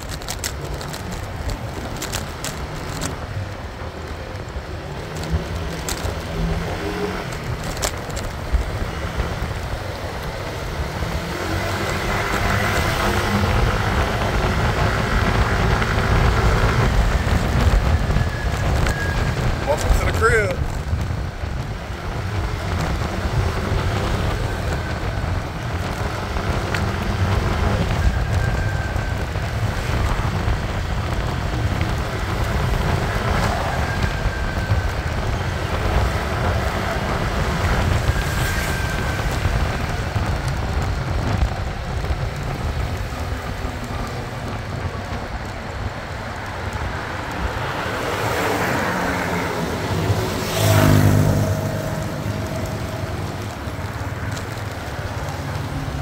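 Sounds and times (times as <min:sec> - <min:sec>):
road and traffic noise: 0:00.0 - 0:56.0
wind buffeting microphone: 0:00.0 - 0:56.0.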